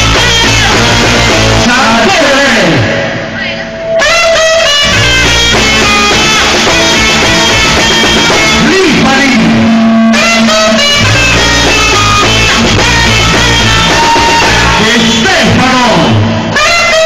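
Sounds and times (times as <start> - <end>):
saxophone melody: 0.0 - 1.7, 3.4 - 14.8
repeating bass line: 0.0 - 17.0.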